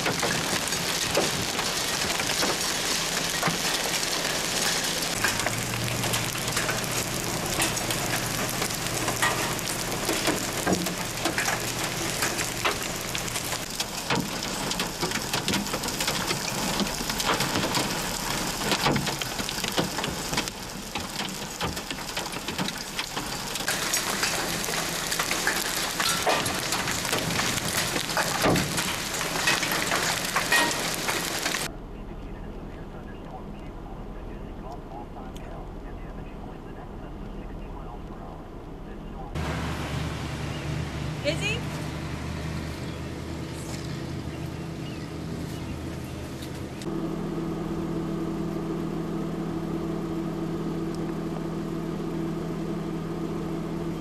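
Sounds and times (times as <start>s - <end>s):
hailstones ticking on pavement: 0.0s - 31.7s
heavy rain hissing: 0.0s - 31.7s, 39.4s - 44.6s.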